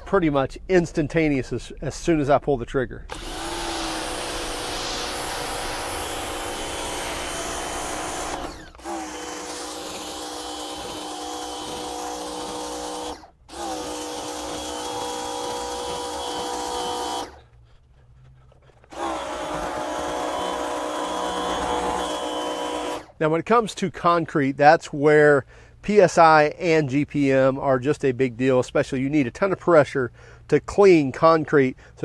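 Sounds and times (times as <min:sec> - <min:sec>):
pressure washer motor whine: 0:03.1 - 0:17.4, 0:18.9 - 0:23.1
water spray hiss: 0:03.8 - 0:08.1.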